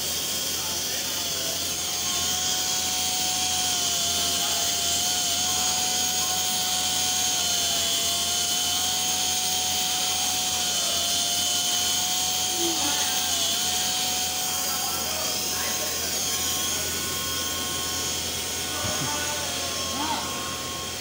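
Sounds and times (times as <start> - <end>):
pneumatic grinders whining: 0.0 - 21.0.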